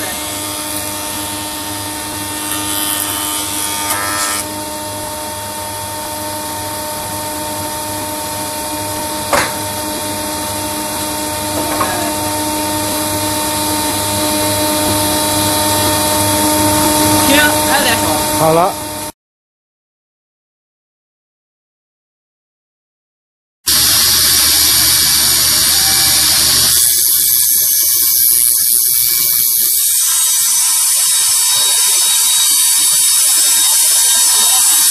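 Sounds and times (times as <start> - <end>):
jointer cutting board: 0.0 - 4.6, 6.2 - 17.4, 23.7 - 34.9
woodworking machine humming: 0.0 - 19.1, 23.7 - 30.6.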